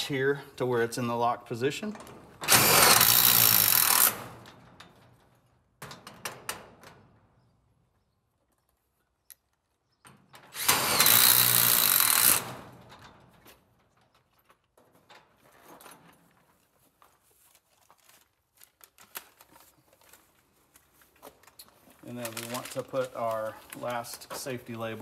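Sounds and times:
cordless drill running: 2.5s - 4.2s, 10.6s - 12.5s.

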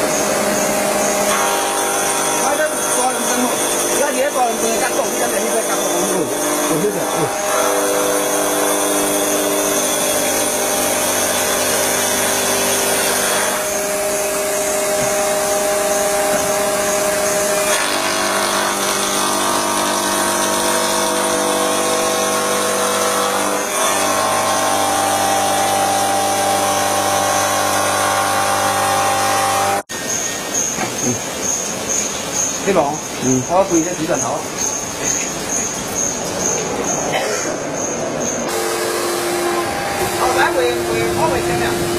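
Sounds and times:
polishing machine grinding stone: 0.0s - 29.9s, 38.4s - 41.9s.

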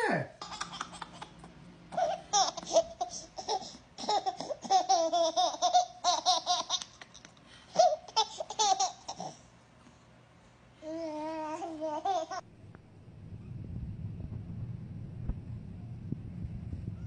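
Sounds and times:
baby laughing: 0.4s - 7.2s, 7.8s - 9.4s, 11.8s - 12.4s.

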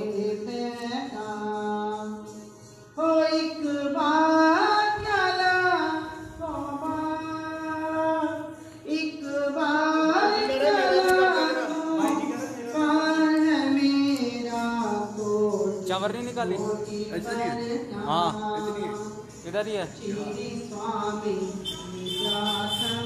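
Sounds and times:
woman singing devotional song: 0.0s - 23.0s.

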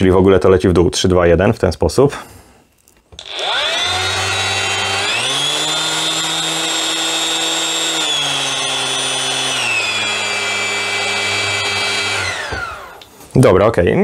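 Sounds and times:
orbital sander whining: 3.2s - 13.1s.

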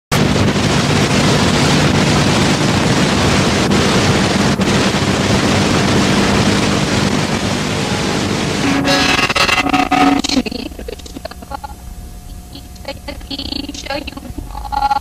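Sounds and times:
loud rushing noise: 7.5s - 10.4s.

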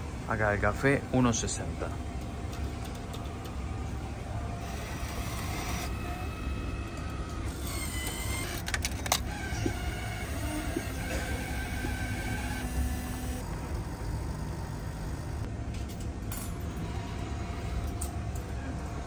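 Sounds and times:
airport terminal background rumble: 0.0s - 12.9s.

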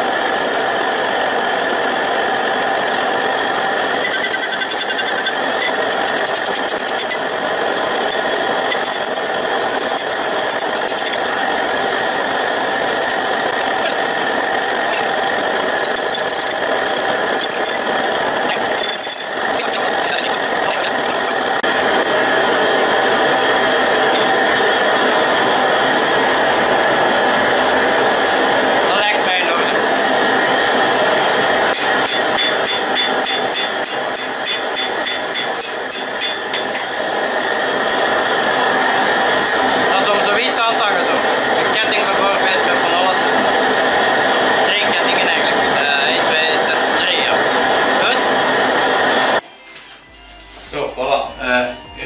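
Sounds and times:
forge mechanical hum and hiss: 0.0s - 52.0s.

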